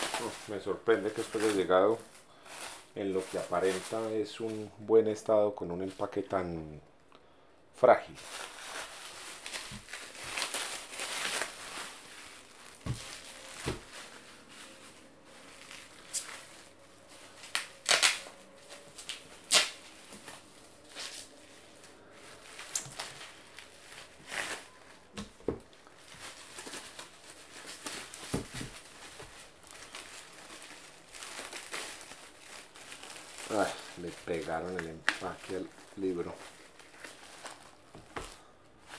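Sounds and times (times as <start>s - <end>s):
plastic packaging crinkling: 0.0s - 4.7s, 8.2s - 38.9s
sharp crackles: 8.2s - 21.3s.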